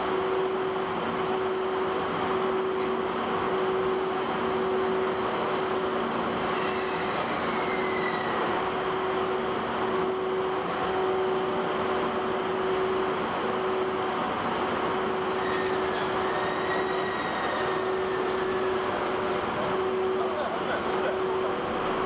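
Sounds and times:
locomotive electrical hum: 0.0s - 22.0s
train running noise: 0.0s - 22.0s
faint falling squeal: 6.5s - 8.5s, 15.4s - 18.7s.

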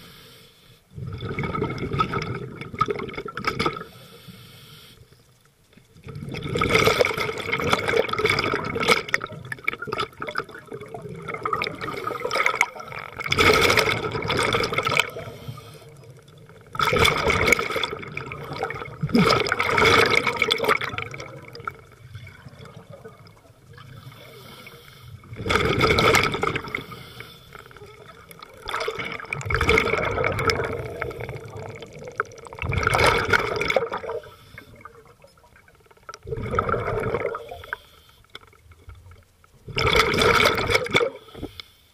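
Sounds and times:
exhaled air bubbling underwater: 0.9s - 41.6s.

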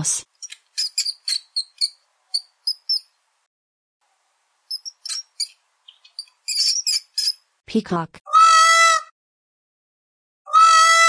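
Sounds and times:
mouse squeaking: 0.4s - 3.1s, 4.7s - 7.4s.

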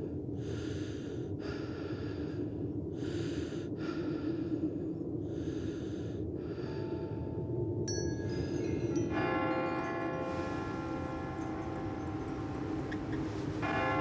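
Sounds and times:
person breathing heavily: 0.0s - 7.4s, 9.9s - 11.4s
steady low hum: 0.0s - 14.0s.

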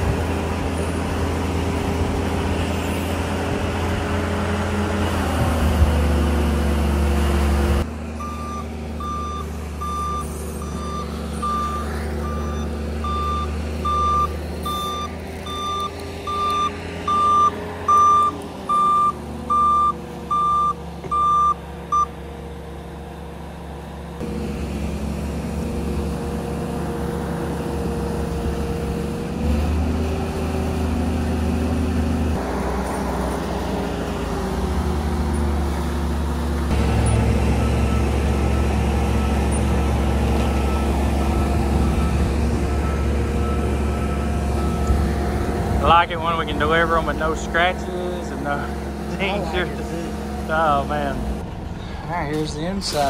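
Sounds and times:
heavy engine running: 0.0s - 53.0s
backup alarm beeping: 8.2s - 22.1s.

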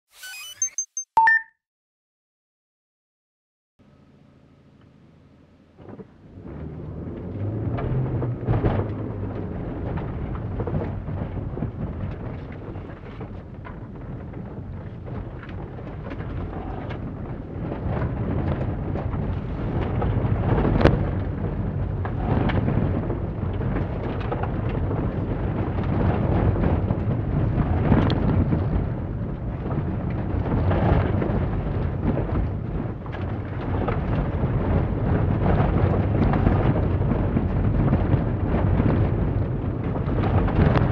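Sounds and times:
car engine under load: 3.8s - 25.2s
tyres rumbling on gravel: 5.8s - 40.9s.

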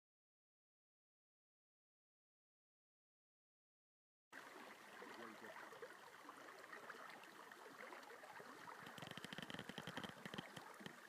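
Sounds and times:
rippling stream rushing: 4.4s - 11.0s.

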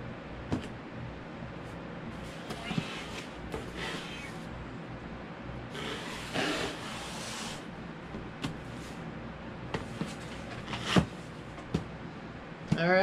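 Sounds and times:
cardboard boxes scraping on table: 2.2s - 4.4s, 5.7s - 7.7s, 9.8s - 11.2s.

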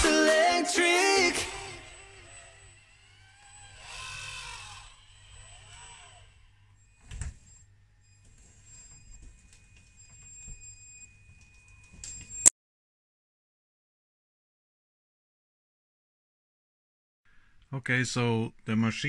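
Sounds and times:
small electric motor whine: 1.0s - 12.4s.

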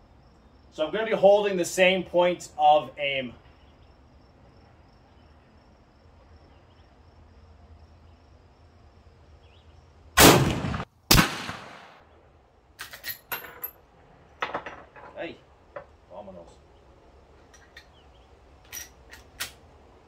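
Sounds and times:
rifle shot: 10.2s - 12.0s
sharp crack: 10.2s - 12.1s.

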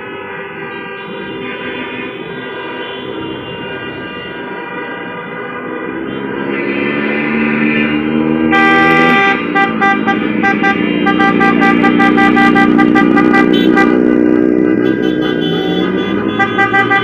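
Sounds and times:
street traffic: 0.0s - 17.0s
higher car horn short beeps: 8.5s - 14.0s, 14.8s - 17.0s.

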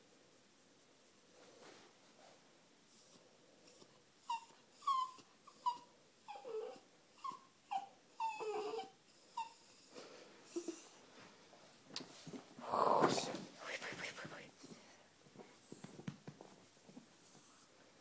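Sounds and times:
dog whimpering: 3.0s - 9.9s.

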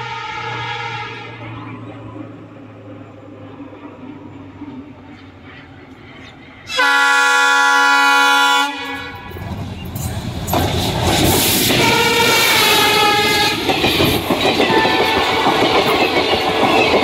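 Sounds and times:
locomotive horn: 0.0s - 1.8s, 6.7s - 9.4s, 11.7s - 13.7s, 14.7s - 15.9s
engine and wheels rumbling: 0.0s - 7.2s, 8.7s - 17.0s
coaches clattering over rails: 8.9s - 17.0s.

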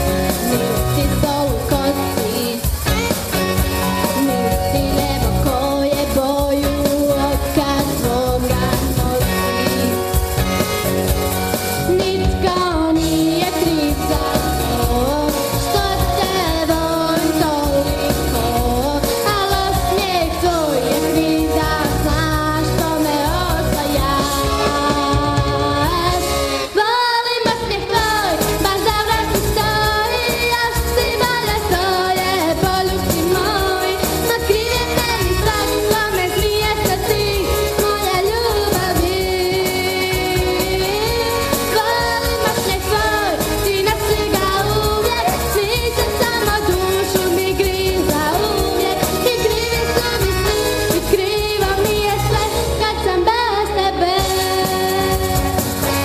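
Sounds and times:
backing music with steady beat: 0.0s - 56.0s
girl singing pop song: 0.0s - 56.0s.

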